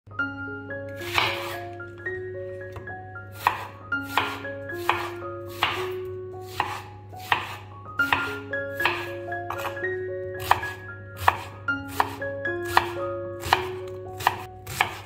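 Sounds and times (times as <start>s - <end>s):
gentle melody: 0.1s - 15.0s
knife slicing onion on cutting board: 1.0s - 1.7s, 3.3s - 9.8s, 10.4s - 15.0s.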